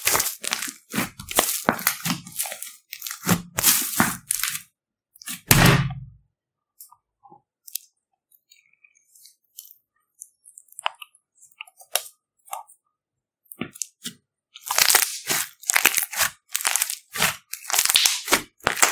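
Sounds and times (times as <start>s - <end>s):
slime crackling and popping: 0.0s - 4.6s, 13.6s - 18.9s
loud thud: 5.5s - 6.2s.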